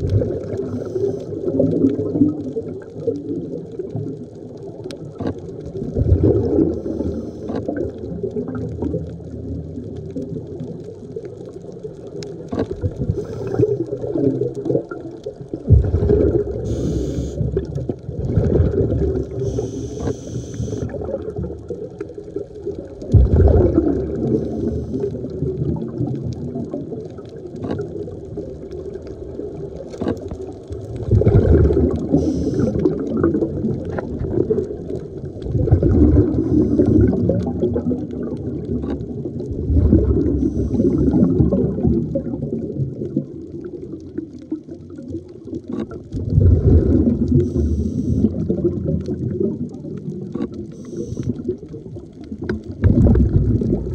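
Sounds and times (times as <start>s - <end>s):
gurgling exhaled bubbles: 0.0s - 53.9s
regulator inhalation hiss: 0.7s - 1.4s, 6.8s - 7.6s, 13.2s - 13.8s, 16.7s - 17.5s, 19.3s - 20.9s, 24.4s - 25.1s, 32.1s - 32.8s, 40.4s - 41.1s, 47.5s - 48.3s.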